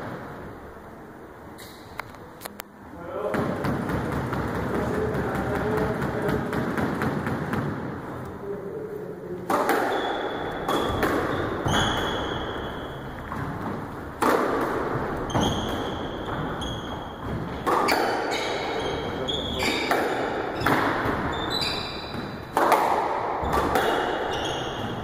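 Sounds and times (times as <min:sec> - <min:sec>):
squash ball hits: 0:03.2 - 0:08.0, 0:09.5 - 0:25.0
shoes squeaking on wooden floor: 0:09.9 - 0:14.2, 0:14.8 - 0:22.5, 0:23.4 - 0:25.0.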